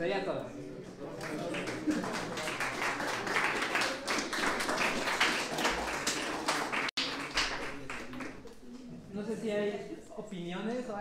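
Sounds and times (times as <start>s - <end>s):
audience applauding: 1.1s - 8.4s.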